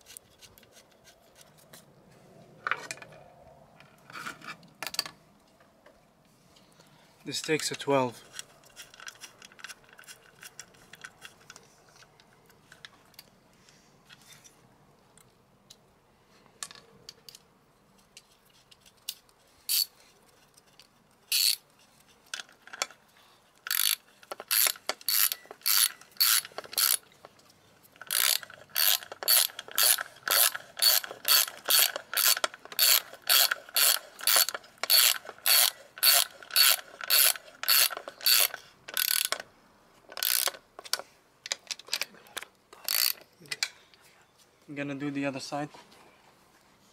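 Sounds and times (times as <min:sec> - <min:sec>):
socket ratchet clicking: 0:19.7 - 0:19.9, 0:21.3 - 0:21.6, 0:23.7 - 0:27.1, 0:28.0 - 0:39.4, 0:40.1 - 0:42.0, 0:42.8 - 0:43.2.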